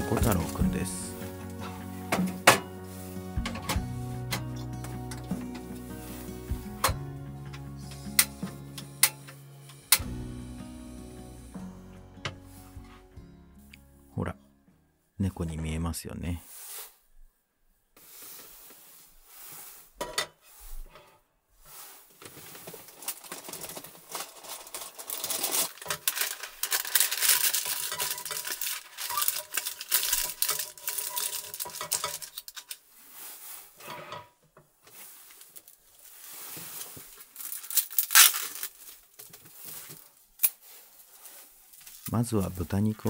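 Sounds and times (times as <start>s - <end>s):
wrapping crinkling and tearing: 0.0s - 3.6s, 22.0s - 33.4s, 34.9s - 43.0s
pan and utensils clinking: 20.0s - 20.4s, 27.4s - 32.5s.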